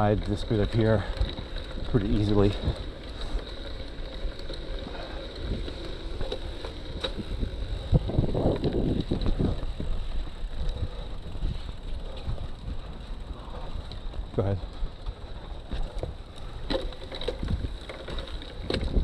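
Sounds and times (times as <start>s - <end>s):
bike tyre rumble and rattle: 0.0s - 19.0s
wind on microphone: 7.0s - 13.6s.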